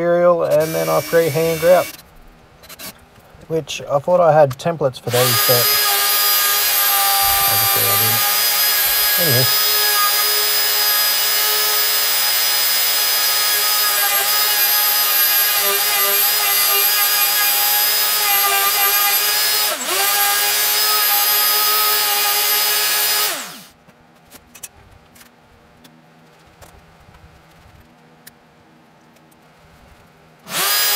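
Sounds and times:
trim router whining: 0.0s - 2.0s, 5.1s - 23.7s, 30.5s - 30.9s
router winding down: 0.5s - 2.0s, 5.1s - 23.7s, 30.5s - 30.9s.

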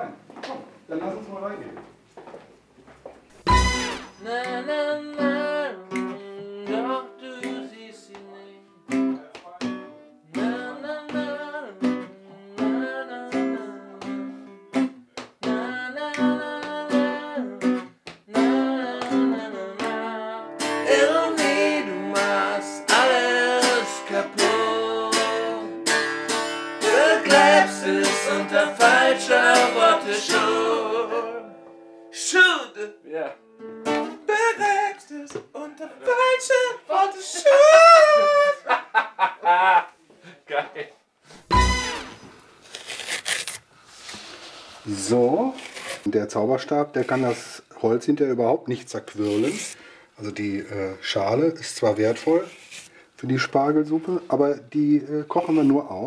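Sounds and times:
song with guitar and singing: 3.5s - 32.2s.

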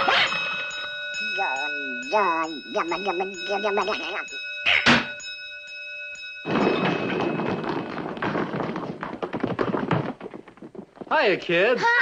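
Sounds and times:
ringing tone: 0.0s - 8.2s
clattering thumping and banging: 6.4s - 11.3s.

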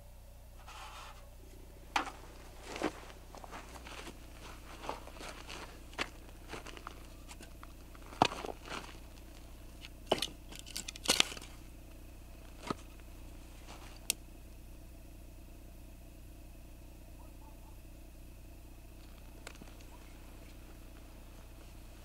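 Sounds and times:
firewood knocking and clattering: 1.9s - 2.8s, 4.8s - 11.6s.

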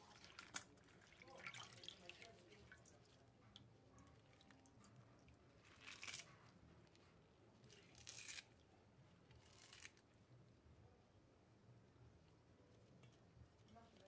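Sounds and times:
wet leaves tearing: 5.6s - 6.4s, 7.7s - 8.6s, 9.3s - 10.0s.

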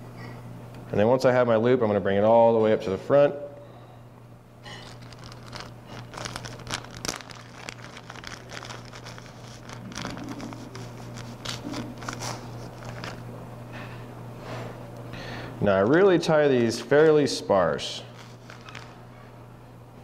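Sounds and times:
low steady hum: 0.0s - 20.0s
packet crinkling and crackling: 4.7s - 13.3s, 18.0s - 19.0s.

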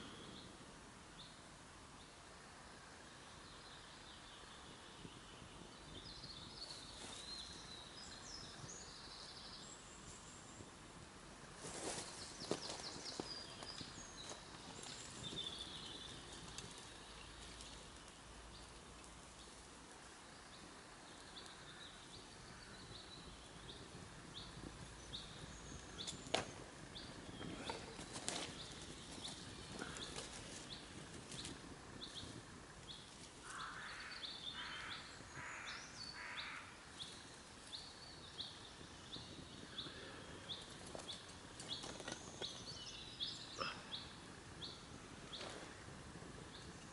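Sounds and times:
forest ambience: 0.0s - 46.9s
rustling: 11.6s - 19.8s, 27.4s - 33.6s.

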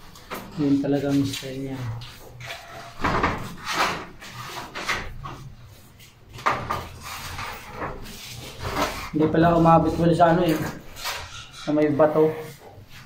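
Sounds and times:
glass sliding door scraping and knocking: 2.4s - 5.5s.

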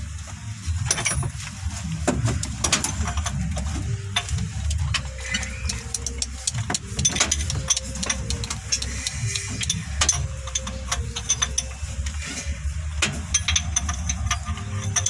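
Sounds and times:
engine running rough: 0.0s - 15.0s
valve gear clicking: 4.2s - 11.8s.

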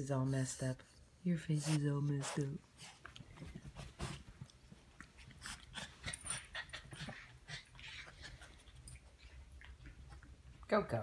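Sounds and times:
small dogs scuffling and snuffling: 1.4s - 10.6s.

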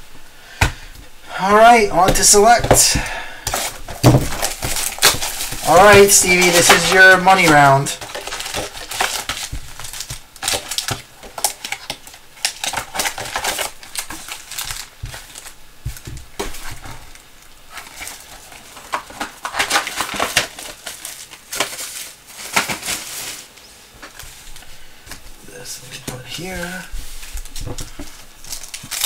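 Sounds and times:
plastic wrapping crinkling and tearing: 1.4s - 29.0s.

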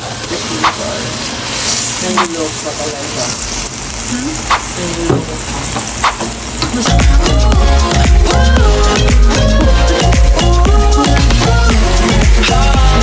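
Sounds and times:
oil sizzling in a wok: 0.0s - 13.0s.

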